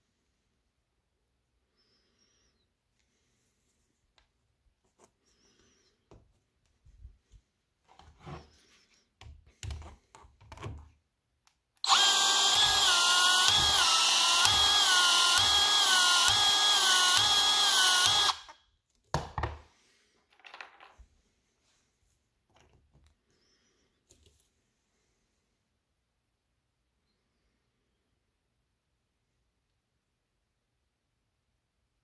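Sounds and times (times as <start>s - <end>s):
power tool motor whine: 11.8s - 18.6s.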